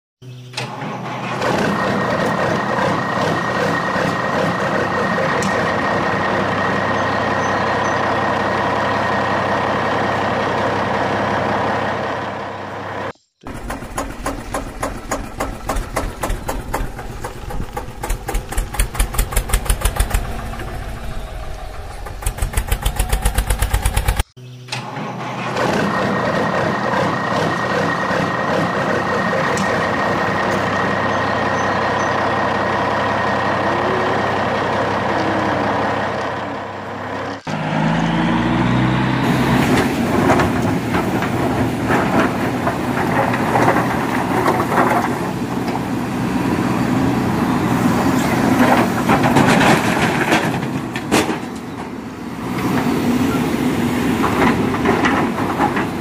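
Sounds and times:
heavy truck engine: 0.2 - 56.0
engine revving in steps: 0.6 - 51.4
gravel clattering and rattling: 39.6 - 45.9, 48.4 - 52.0, 54.2 - 56.0.

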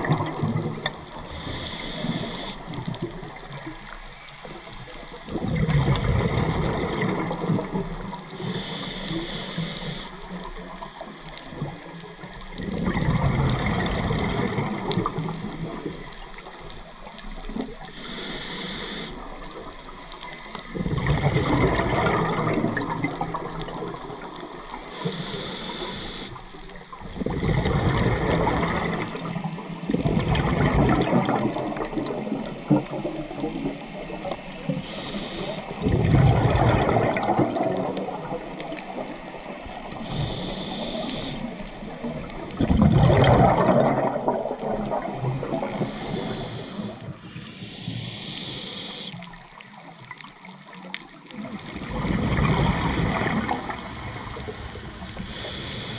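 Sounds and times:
gurgling exhaled bubbles: 0.0 - 55.9
hissing regulator inhales: 1.3 - 2.8, 8.4 - 10.2, 15.2 - 16.4, 17.9 - 19.2, 24.9 - 26.4, 34.8 - 35.8, 40.0 - 41.5, 45.7 - 49.3, 55.2 - 55.9.

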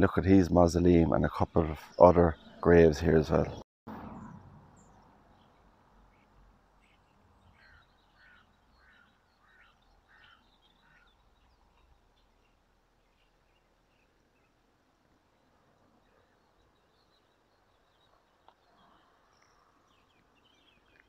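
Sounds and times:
faint short bird calls: 6.1 - 14.5.

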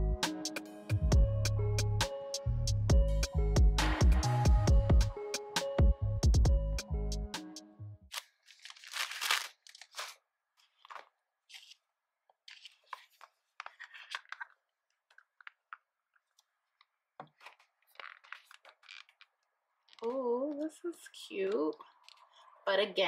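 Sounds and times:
background music: 0.0 - 8.1.

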